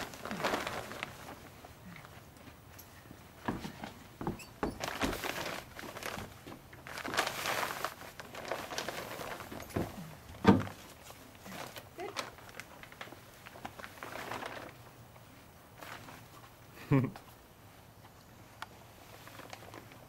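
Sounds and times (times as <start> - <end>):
tarp rustling and crackling: 0.0 - 2.7, 3.4 - 20.0
thump: 10.4 - 10.7.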